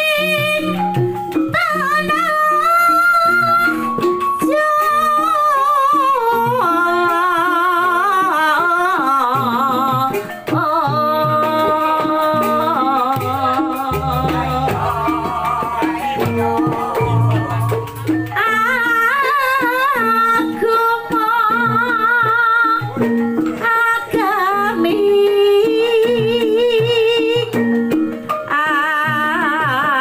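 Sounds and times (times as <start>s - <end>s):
hand drum keeping time: 0.0s - 30.0s
high voice singing: 10.8s - 22.4s
gongs ringing: 13.9s - 19.3s
deep low tone: 16.2s - 18.0s.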